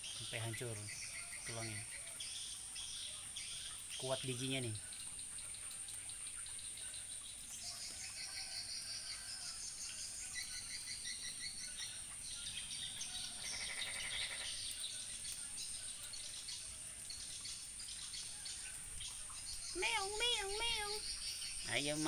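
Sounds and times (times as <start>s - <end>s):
frogs trilling: 0.0s - 22.0s
rain: 0.0s - 22.0s
loud pulsed frog croak: 13.4s - 14.7s.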